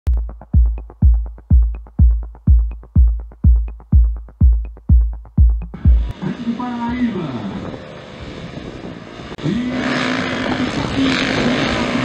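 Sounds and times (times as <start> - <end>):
heavy kick drum: 0.1 - 6.1
electronic dance music: 0.1 - 6.7.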